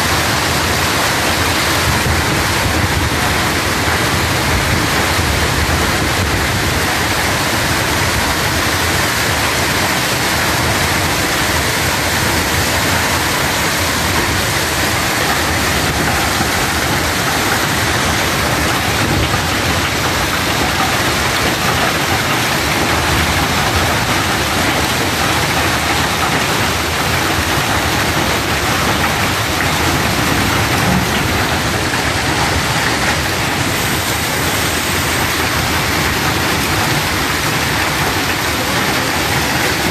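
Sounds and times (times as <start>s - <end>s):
hail and heavy rain pelting: 0.0s - 39.9s.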